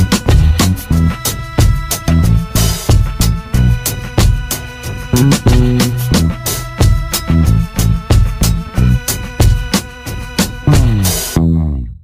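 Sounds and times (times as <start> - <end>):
drum beat: 5.1 - 6.7
bass line: 5.1 - 8.0, 10.7 - 11.9
held tones: 5.2 - 6.6.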